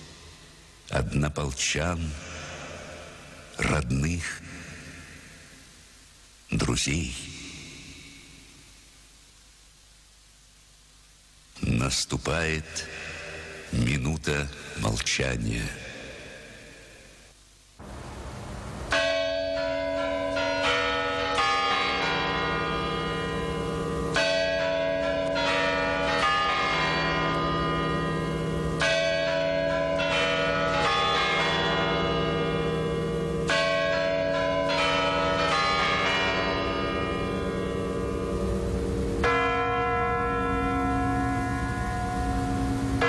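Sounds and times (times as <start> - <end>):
heavy church bell tolling: 18.9 - 43.0.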